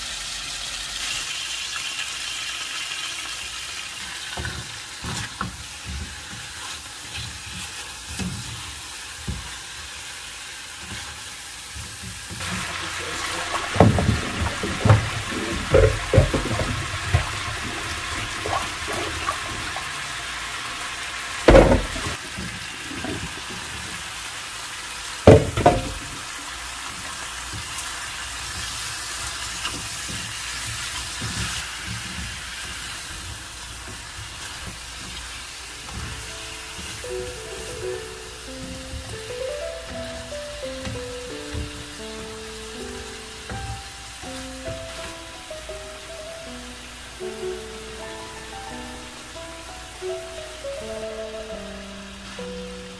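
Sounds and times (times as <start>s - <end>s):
water swished in a pot: 0.0s - 45.3s
chicken frying in a pan: 0.0s - 52.9s
pot clattering and knocking: 13.5s - 20.1s, 21.5s - 23.6s, 25.3s - 26.2s.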